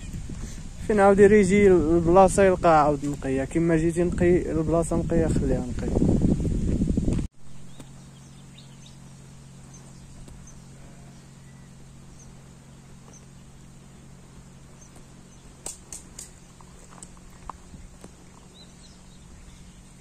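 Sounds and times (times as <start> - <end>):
steady low hum: 0.0 - 20.0
sharp clicks: 14.8 - 18.2.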